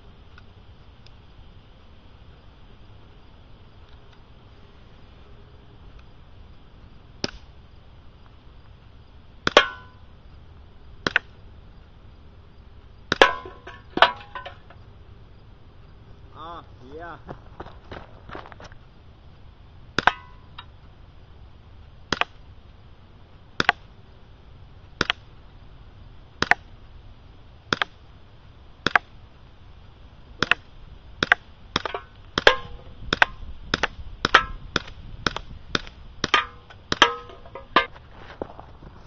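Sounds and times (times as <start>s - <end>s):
bbs cracking against rock and can: 30.4s - 38.7s.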